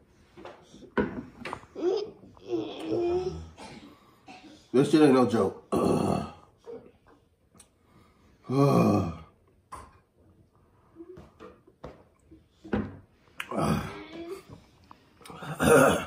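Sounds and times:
man groaning: 5.7s - 6.4s, 8.5s - 9.3s, 13.5s - 14.1s, 15.4s - 16.0s.

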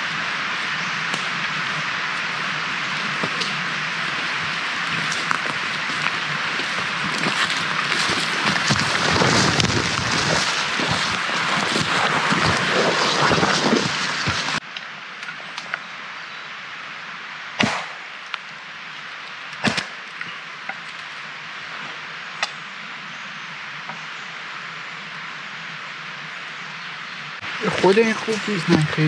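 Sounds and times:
footsteps through wet leaves: 0.0s - 14.6s
cutting tool chopping branch: 17.6s - 18.0s, 19.6s - 20.8s.

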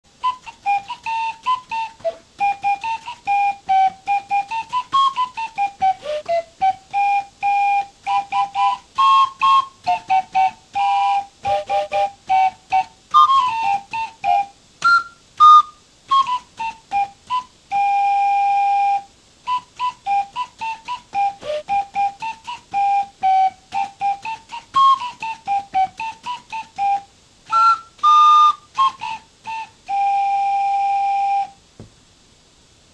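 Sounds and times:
paper organ playing a tune: 0.2s - 31.5s.

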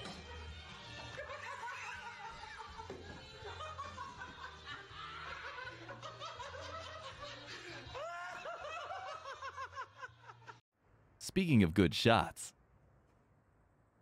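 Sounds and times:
people laughing: 3.4s - 10.6s.

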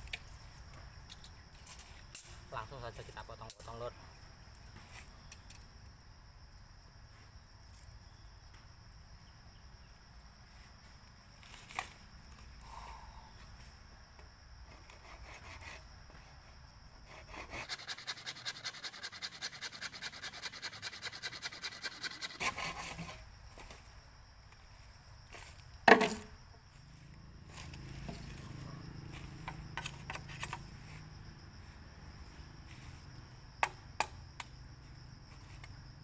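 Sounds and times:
hand saw cutting bamboo: 14.7s - 15.8s, 17.0s - 23.2s.

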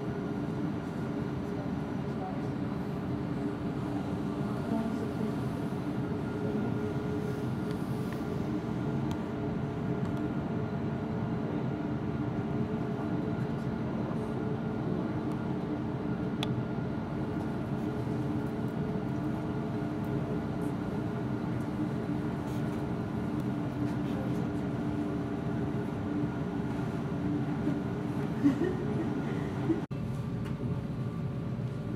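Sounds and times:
steady mechanical hum: 0.0s - 31.9s.

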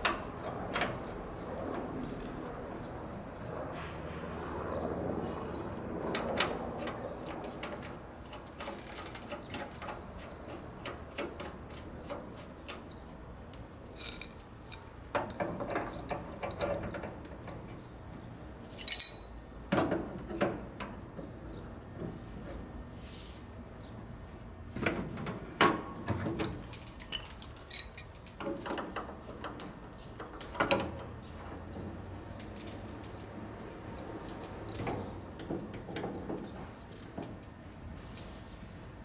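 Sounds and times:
light metal clinks of wrenches: 13.9s - 17.2s, 18.8s - 19.5s, 26.4s - 28.9s
sharp ringing metal clink: 18.8s - 19.4s.

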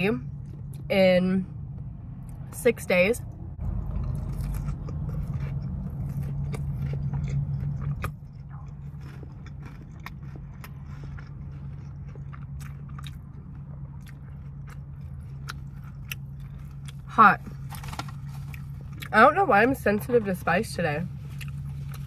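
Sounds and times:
steady low hum: 0.0s - 22.0s
close chewing with mouth clicks: 3.6s - 19.2s, 21.2s - 22.0s.

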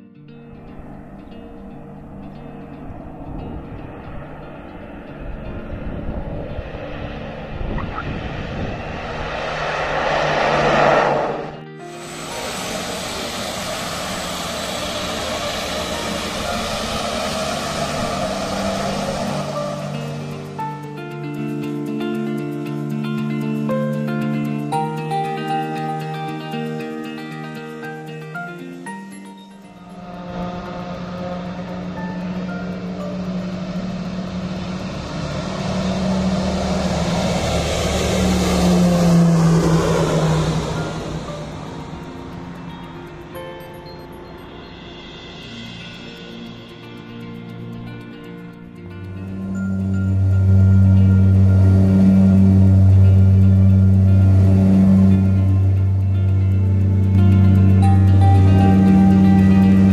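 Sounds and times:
small airplane engines running: 0.0s - 59.9s.

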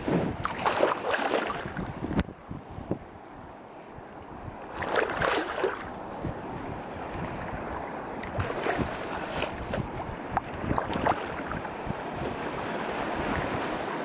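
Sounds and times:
wind buffeting microphone: 0.0s - 14.0s
water splashing against boat hull: 0.2s - 2.3s, 4.7s - 6.0s, 7.1s - 14.0s.

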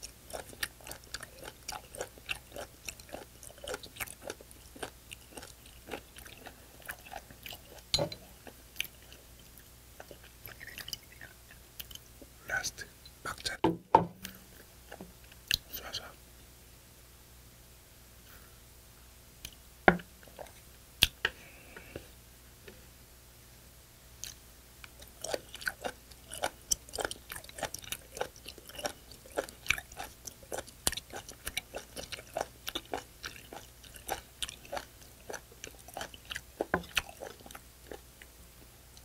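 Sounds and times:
clicking chewing: 0.0s - 7.8s, 24.2s - 38.3s.

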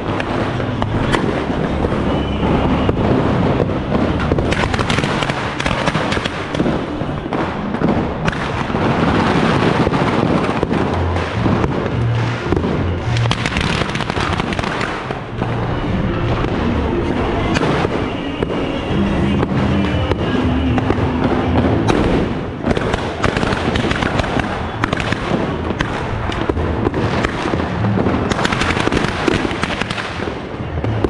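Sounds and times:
firecrackers crackling and popping: 0.0s - 31.0s
bass-heavy music: 8.6s - 22.9s, 24.5s - 29.0s.

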